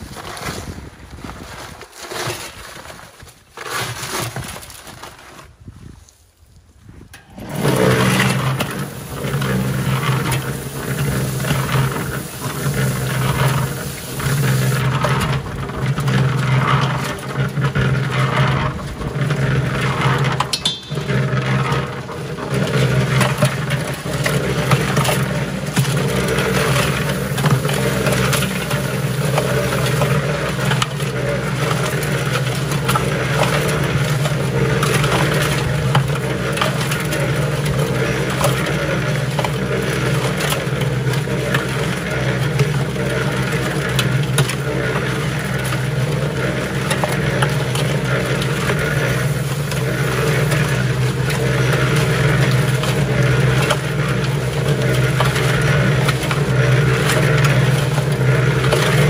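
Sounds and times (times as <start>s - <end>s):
wet concrete tumbling in drum: 0.0s - 5.6s, 7.2s - 59.0s
paper sack handling: 0.0s - 6.1s, 7.2s - 19.3s, 21.0s - 35.9s, 47.6s - 55.6s
cement mixer motor hum: 7.1s - 59.0s.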